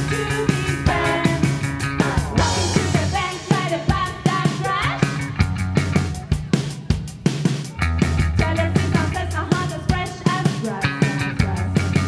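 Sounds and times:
person singing: 0:00.0 - 0:01.6, 0:02.2 - 0:05.3, 0:08.4 - 0:12.0
rock music: 0:00.0 - 0:12.0
steady drum beat: 0:00.0 - 0:12.0.

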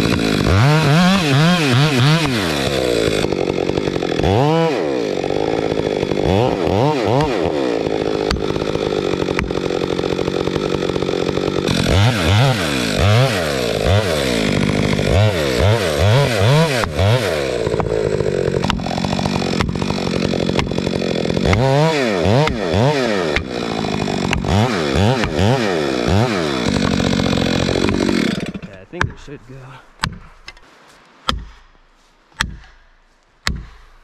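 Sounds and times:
chainsaw cutting: 0:00.0 - 0:30.7
axe pounding wedges: 0:29.0 - 0:29.4, 0:30.0 - 0:30.6, 0:31.3 - 0:34.0.

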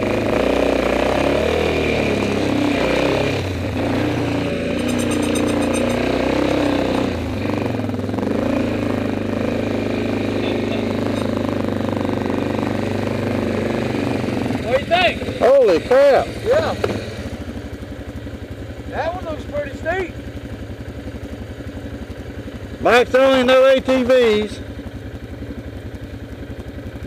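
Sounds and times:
atv engine running: 0:00.0 - 0:27.0
brief rattle: 0:04.7 - 0:06.1.

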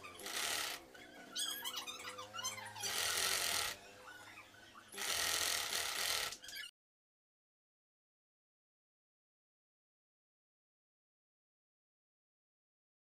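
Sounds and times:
sewing machine stitching: 0:00.0 - 0:00.8, 0:02.8 - 0:03.8, 0:04.9 - 0:06.6.

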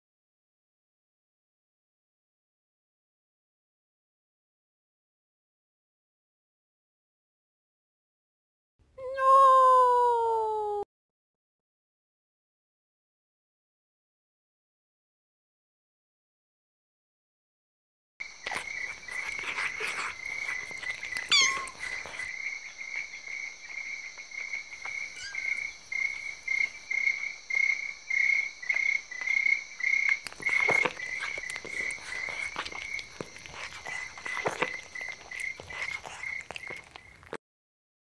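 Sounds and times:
chirping frogs and insects: 0:18.2 - 0:37.4.

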